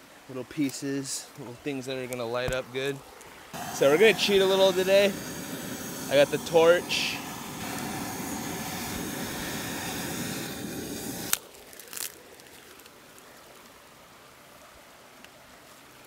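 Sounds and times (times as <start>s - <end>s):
gas torch flame hissing: 3.5s - 11.4s
stream rushing: 3.5s - 11.4s.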